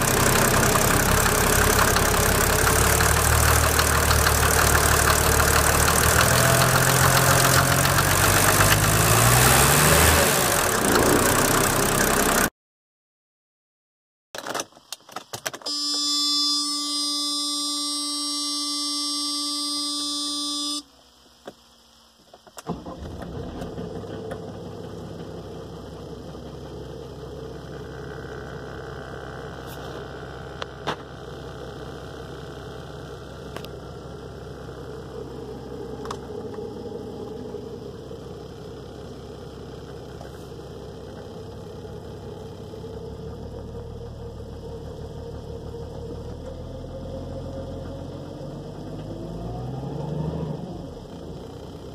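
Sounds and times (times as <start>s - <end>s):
diesel engine idling: 0.0s - 12.5s, 22.7s - 49.0s
engine revving: 0.0s - 12.5s, 35.0s - 38.4s, 41.8s - 51.9s.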